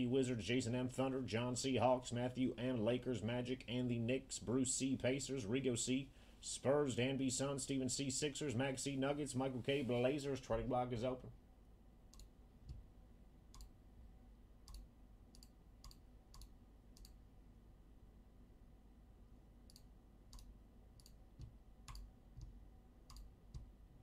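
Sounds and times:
faint sharp clicks: 12.1s - 12.8s.

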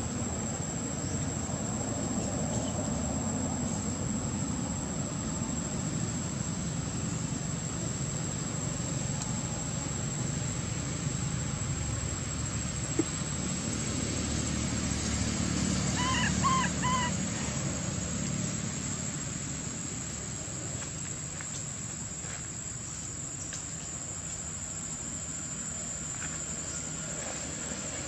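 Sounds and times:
high insect whine: 0.0s - 28.0s.

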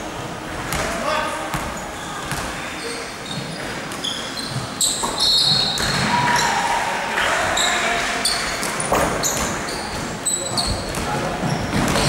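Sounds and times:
sneakers squeaking on floor: 1.5s - 6.5s, 7.4s - 12.0s.

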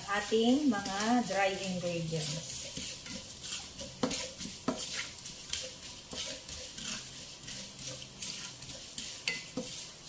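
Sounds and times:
oil sizzling: 0.0s - 10.0s
utensil scraping a wok: 0.0s - 10.0s.

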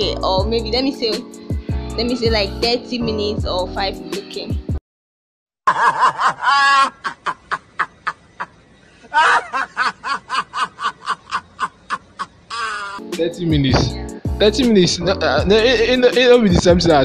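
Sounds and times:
man laughing hard: 5.7s - 13.0s, 15.0s - 16.1s.

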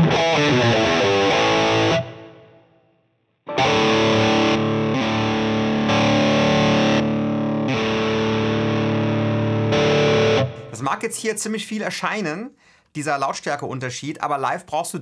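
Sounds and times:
distorted electric guitar: 0.0s - 2.8s, 3.5s - 10.8s.

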